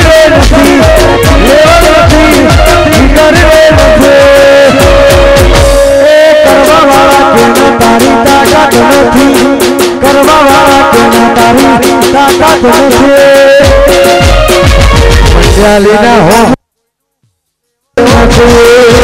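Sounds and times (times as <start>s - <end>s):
heavy low drum beat: 0.0s - 16.6s, 18.0s - 19.0s
folk music with rattling percussion: 0.0s - 19.0s.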